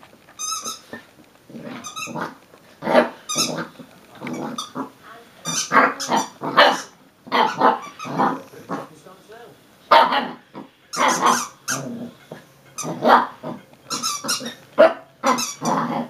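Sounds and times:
squeaky toy squeaks: 0.4s - 1.0s, 1.8s - 2.2s, 3.3s - 3.7s, 4.3s - 4.8s, 5.4s - 8.4s, 10.9s - 16.0s
puppy barking and growling: 0.6s - 8.9s, 9.9s - 16.0s.

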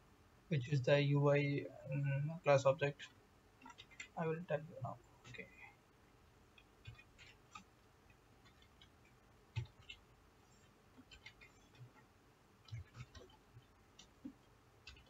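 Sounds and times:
keyboard keystrokes: 6.8s - 7.7s, 12.6s - 15.0s.

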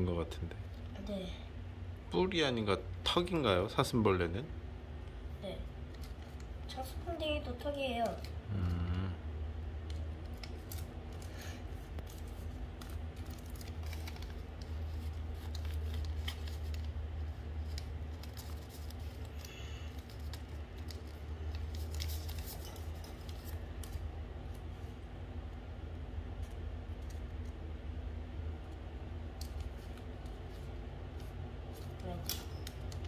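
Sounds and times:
steady low hum: 0.0s - 33.0s
paper rustling and creasing: 9.9s - 24.8s.

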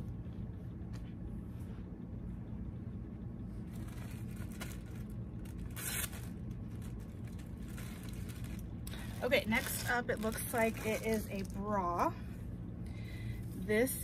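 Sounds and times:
low room hum: 0.0s - 14.0s
plastic bag crinkling: 3.7s - 11.7s.

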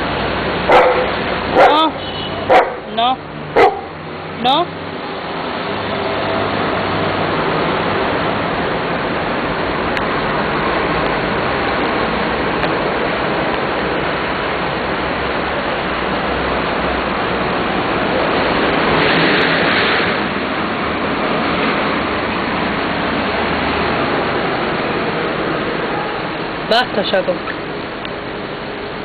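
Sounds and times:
street traffic noise: 0.0s - 29.0s
vehicle passing: 0.0s - 29.0s.

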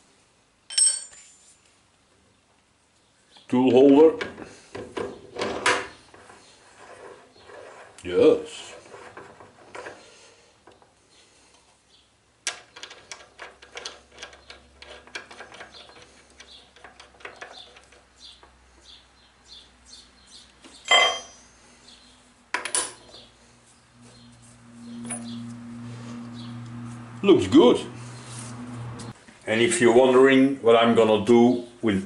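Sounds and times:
steel parts clinking: 0.7s - 1.4s, 20.9s - 21.5s
loud metal clang: 20.9s - 21.4s
sharp metal clank: 20.9s - 21.5s.

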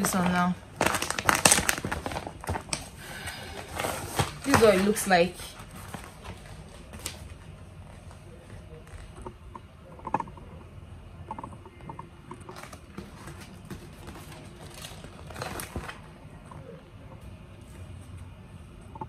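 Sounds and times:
plastic packaging crinkling: 0.0s - 3.0s, 12.4s - 16.1s.

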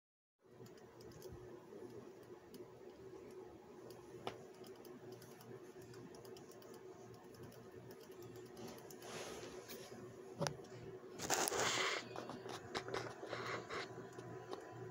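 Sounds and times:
faint steady hum: 0.4s - 14.9s
rat claws clicking: 2.2s - 9.1s.

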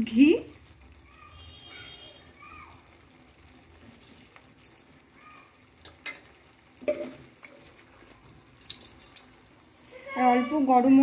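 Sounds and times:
curry bubbling in a pan: 0.0s - 11.0s
utensil clicking against pan: 5.8s - 7.8s.

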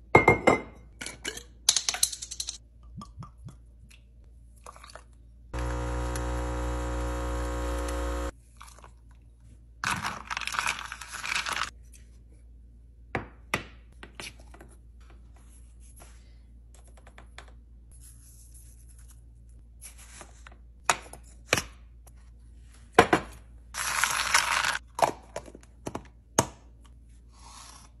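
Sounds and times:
small appliance motor running: 5.6s - 8.3s.

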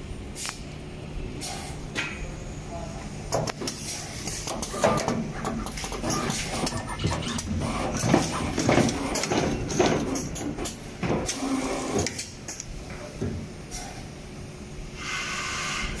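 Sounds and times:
machine knocks and clacks: 4.4s - 11.3s.

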